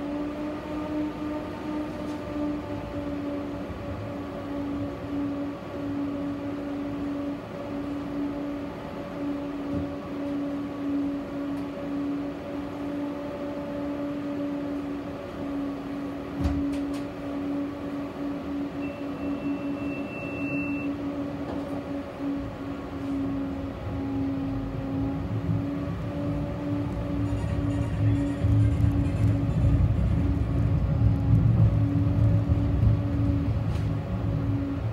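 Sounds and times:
tram electric hum: 0.0 - 34.9.

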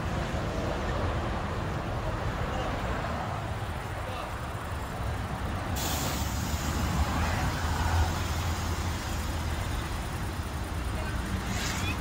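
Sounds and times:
car engine and road noise: 0.0 - 12.0
bright hiss: 5.8 - 7.2.

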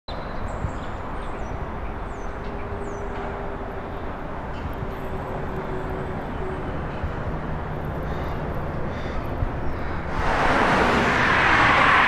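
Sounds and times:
road traffic hum: 0.1 - 12.0.

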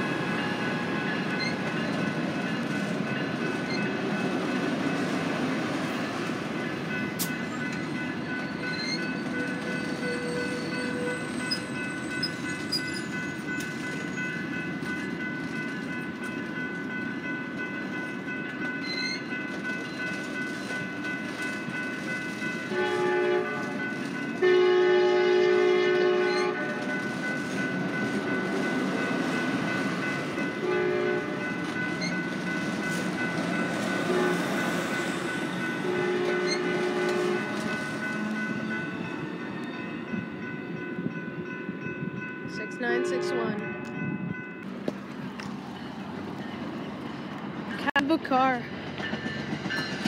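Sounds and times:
train horn blasts: 22.7 - 26.9, 30.6 - 31.5, 34.0 - 34.6, 35.8 - 37.8, 42.8 - 43.7.

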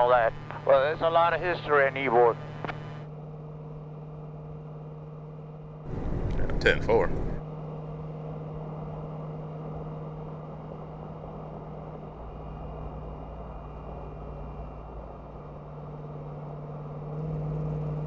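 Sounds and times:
truck diesel engine drone: 0.0 - 18.0
road noise: 5.9 - 18.0.

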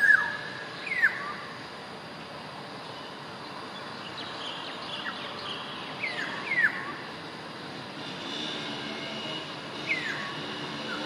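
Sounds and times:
bird whistling downward notes: 0.0 - 1.4
steady rushing background noise: 0.0 - 11.0.

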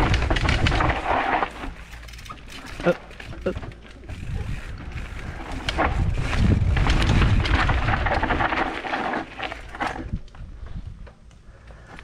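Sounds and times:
wind rumble on microphone: 0.0 - 1.4, 3.3 - 11.3
microphone jolts: 0.0 - 3.6, 4.2 - 10.2.

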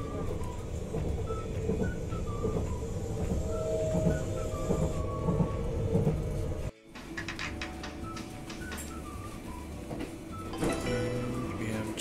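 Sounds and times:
electric train rumble: 0.0 - 12.0.

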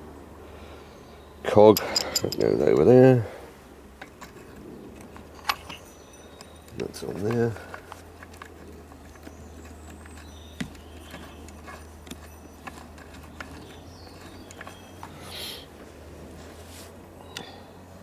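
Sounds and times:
small parts clicking and tapping: 1.7 - 2.9, 4.0 - 15.2.

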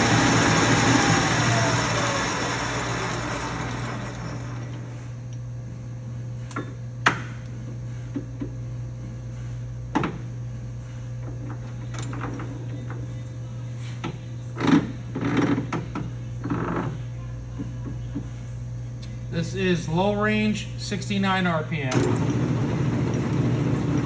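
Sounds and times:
lathe headstock coasting down: 0.0 - 4.9
steady low hum: 0.0 - 24.0.

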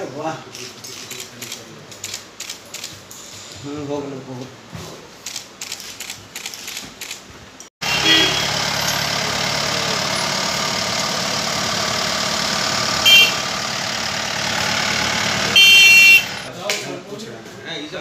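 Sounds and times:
street traffic: 0.0 - 18.0
car horn toot: 7.8 - 8.7, 12.8 - 13.8, 15.3 - 16.5
vehicle engine running: 7.8 - 16.5.

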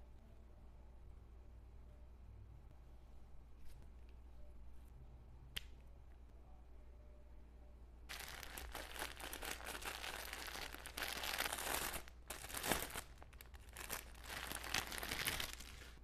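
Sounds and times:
plastic bag crinkling: 8.1 - 16.0.

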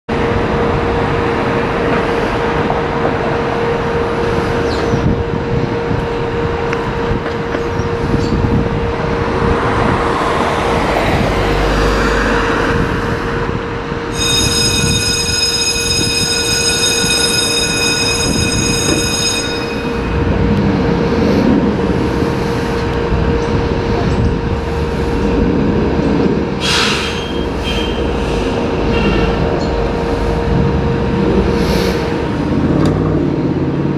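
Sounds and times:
fire truck engines idling: 10.7 - 33.9
high-pitched tone: 14.0 - 21.6.

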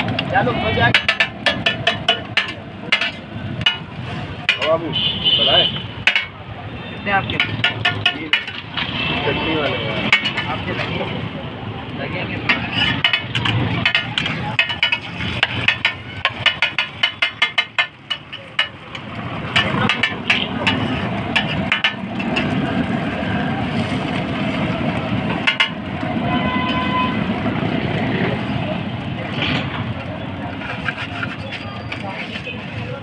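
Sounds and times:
street traffic rumble: 0.0 - 33.0
metal spatula clinking on griddle: 0.9 - 3.8, 7.4 - 8.6, 10.1 - 10.6, 12.5 - 22.5.

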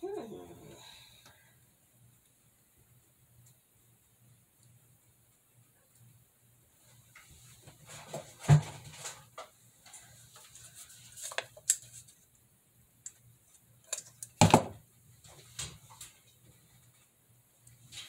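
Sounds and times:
items knocked on countertop: 14.4 - 14.8.

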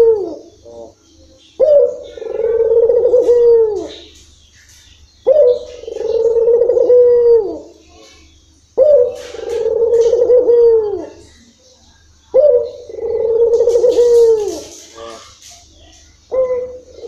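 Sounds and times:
dove cooing: 0.0 - 17.0.

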